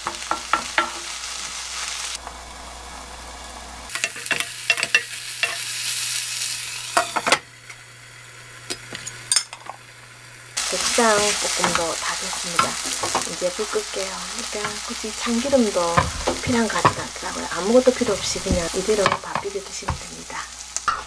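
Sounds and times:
onions sizzling in a frying pan: 0.0 - 21.0
wooden spatula scraping a pan: 10.6 - 13.8, 14.4 - 20.2.

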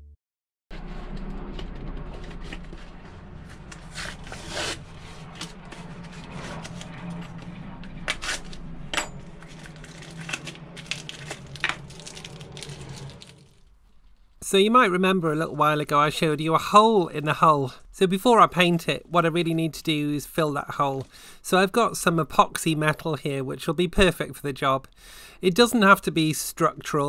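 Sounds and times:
steady low hum: 0.7 - 23.6
plastic crinkling and rustling: 9.2 - 14.4.

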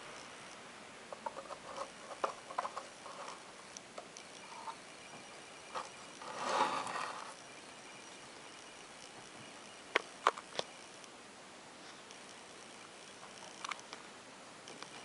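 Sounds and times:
rubbing rustle: 1.1 - 3.7, 5.7 - 7.4
small clicks and taps: 12.0 - 15.0.

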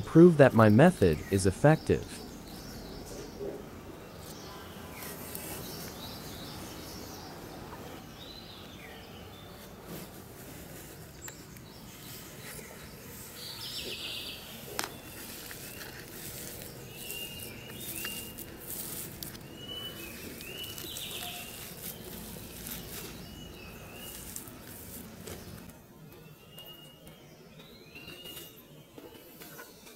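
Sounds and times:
small birds chirping: 0.0 - 29.9
crackles of pressing potting mix: 9.7 - 25.8.

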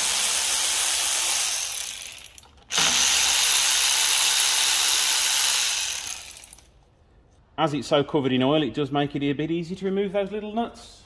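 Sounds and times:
power ratchet running: 0.0 - 6.7.

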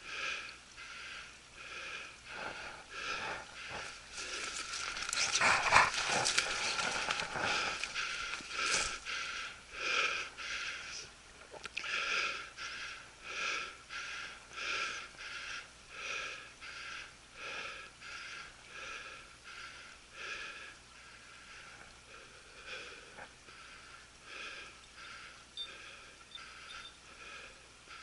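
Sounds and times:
person breathing hard: 0.0 - 11.1, 11.8 - 28.0.

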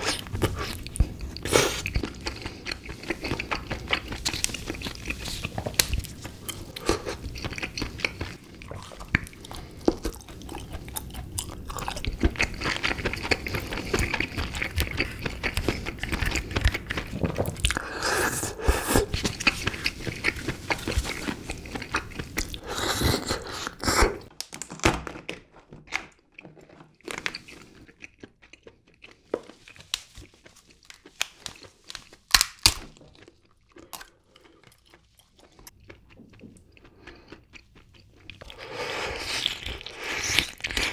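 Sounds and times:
chewing crab meat: 0.0 - 24.3, 25.9 - 40.9
crab shell cracking: 32.2 - 33.0.

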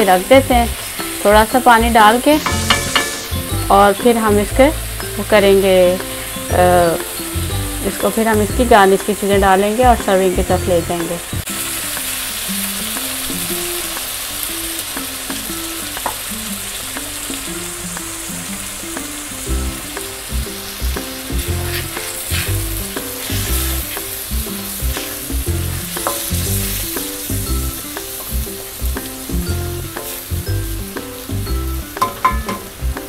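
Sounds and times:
meat sizzling in oil: 0.0 - 33.0
soft background music: 0.0 - 33.0
bass beat: 9.4 - 10.9, 19.5 - 28.5.

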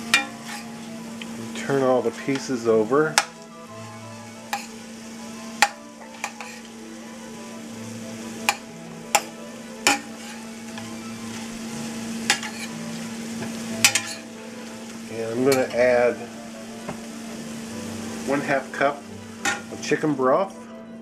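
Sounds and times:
metal spoon scraping pan: 0.0 - 0.9, 4.5 - 4.8, 5.6 - 6.7, 8.4 - 11.5, 12.2 - 12.8, 13.4 - 14.3
chicken sizzling in oil: 0.0 - 20.6.

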